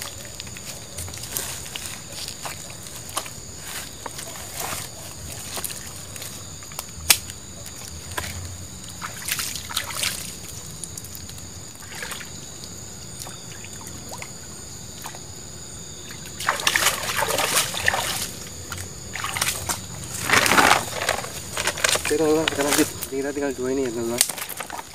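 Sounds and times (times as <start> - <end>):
person wading in water: 16.1 - 23.1.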